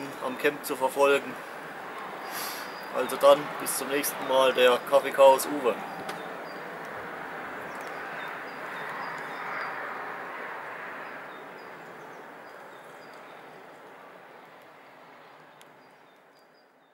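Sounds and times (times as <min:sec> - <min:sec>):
rushing outdoor ambience: 0:00.0 - 0:16.9
high bird chirps: 0:02.2 - 0:03.2.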